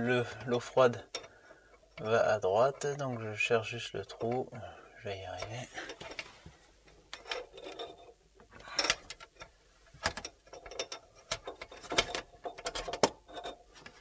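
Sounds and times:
metal hose rattling against sink: 7.0 - 14.0.

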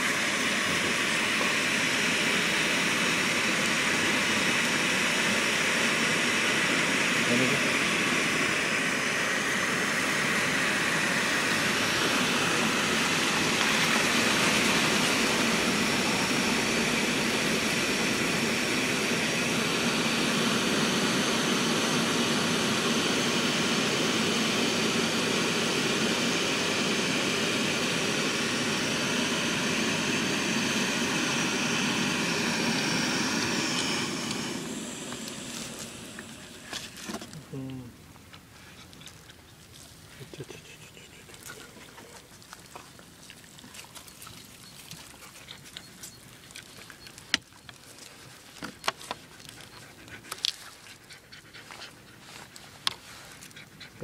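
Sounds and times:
gas stove roaring: 0.0 - 37.8.

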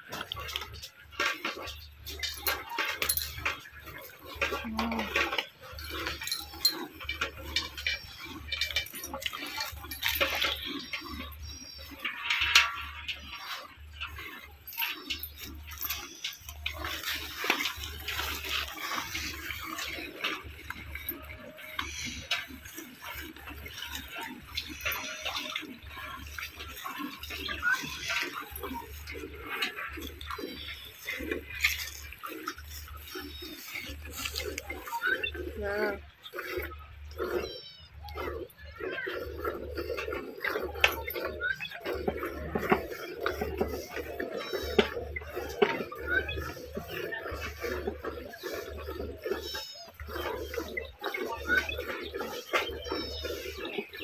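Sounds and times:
metallic clinks: 1.6 - 36.2.

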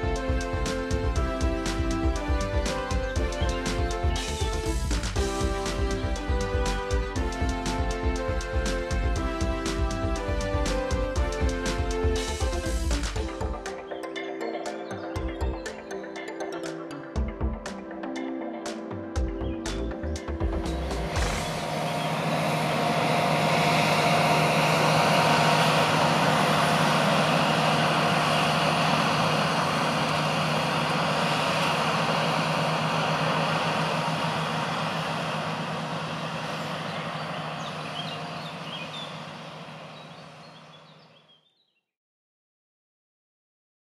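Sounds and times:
diesel engine running: 0.0 - 13.7, 19.4 - 41.2.

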